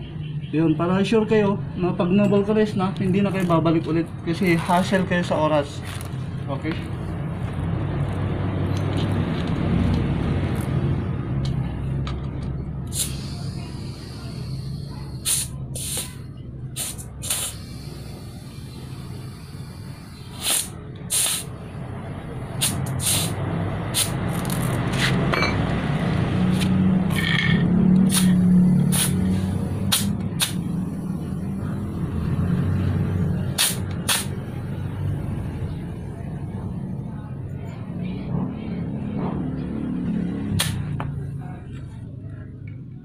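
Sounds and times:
compressed air hissing: 12.8 - 21.7, 22.5 - 24.4, 28.0 - 35.5.

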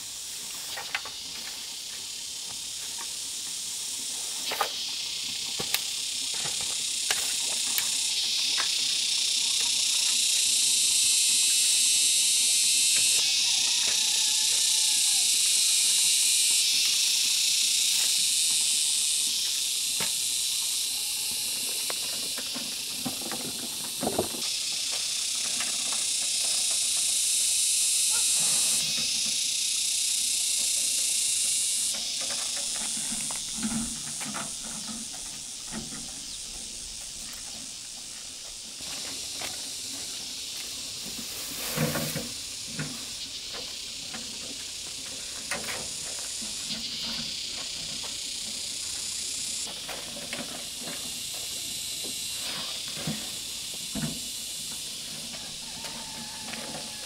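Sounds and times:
high-pitched insect buzz: 0.0 - 57.0
wheelbarrow knocks: 23.1 - 24.5
shovel scraping and knocking: 41.0 - 42.4.

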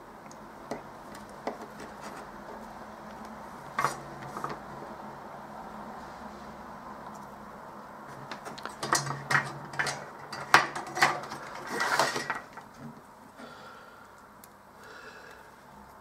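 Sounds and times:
soft handling sounds: 0.8 - 4.7.

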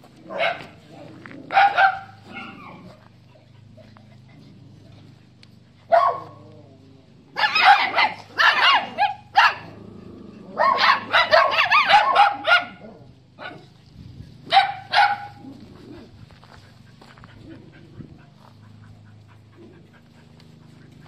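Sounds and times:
dogs barking: 0.2 - 4.2, 5.8 - 6.6, 7.3 - 9.8, 10.5 - 13.8, 14.4 - 16.1.

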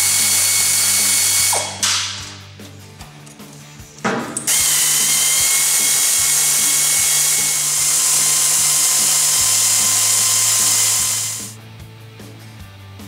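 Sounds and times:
pneumatic air ratchet hissing: 4.5 - 11.6.

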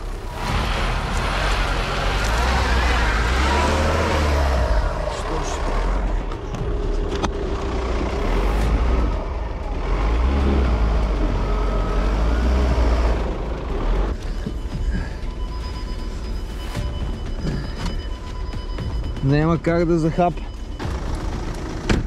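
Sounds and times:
car engine revving: 0.0 - 14.5.

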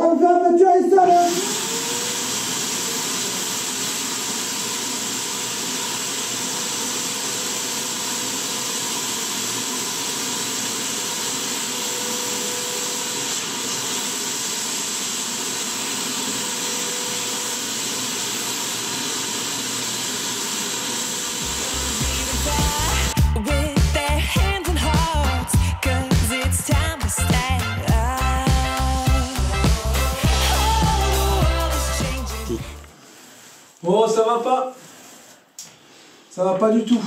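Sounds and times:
paint sprayer hiss and whine: 1.0 - 23.6, 28.6 - 33.4.

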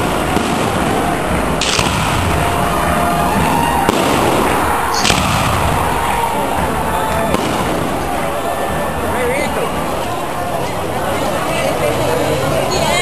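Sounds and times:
fireworks shell bursts rumbling: 0.0 - 10.1
sharp firework crackles: 0.0 - 10.1.

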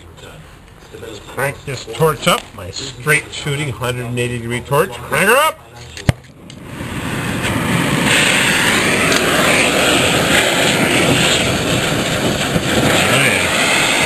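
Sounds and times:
torch flame hissing: 6.2 - 14.0.

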